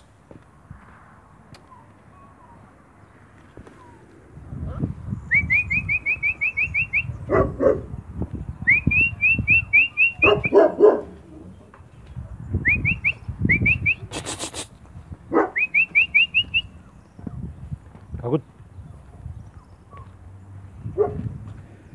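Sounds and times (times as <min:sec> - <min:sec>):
bird chirping: 0:05.1 - 0:07.5, 0:08.5 - 0:14.1, 0:15.3 - 0:20.2
puppies barking: 0:07.0 - 0:08.1, 0:09.6 - 0:11.8, 0:15.2 - 0:16.3, 0:20.9 - 0:21.4
brief rustling hiss: 0:14.1 - 0:14.8.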